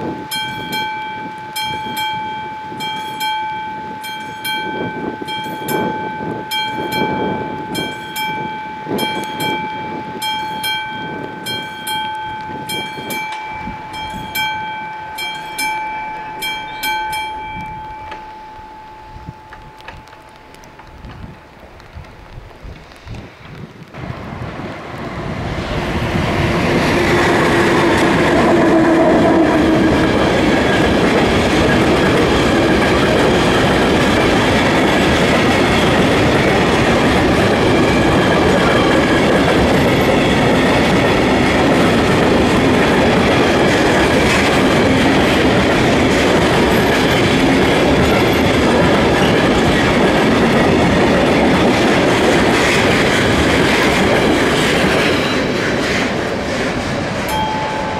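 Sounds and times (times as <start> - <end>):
freight train wheels clattering: 24.9 - 57.9.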